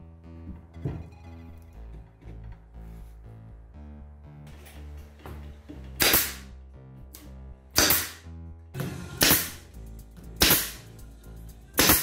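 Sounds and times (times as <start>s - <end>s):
background music: 0.0s - 12.0s
nail gun shots: 6.0s - 6.5s, 7.8s - 8.2s, 9.2s - 9.6s, 10.4s - 10.9s, 11.8s - 12.0s.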